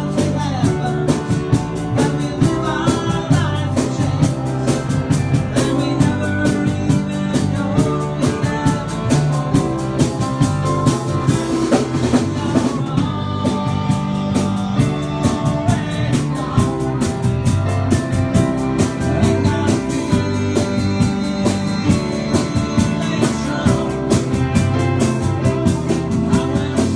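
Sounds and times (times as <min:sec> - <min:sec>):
bass guitar: 0:00.0 - 0:26.9
drum kit with cymbals: 0:00.0 - 0:26.9
electric piano: 0:00.0 - 0:26.9
guitar: 0:00.0 - 0:26.9.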